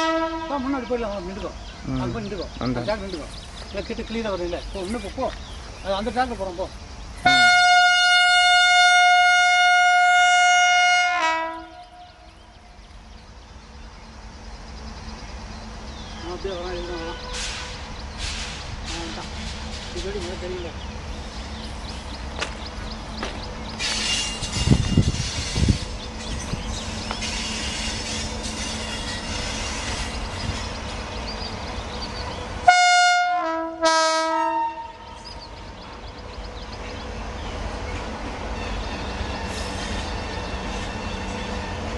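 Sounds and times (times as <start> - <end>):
locomotive air horn blast: 0.0 - 0.7, 7.3 - 12.0, 17.1 - 17.8, 32.6 - 35.1.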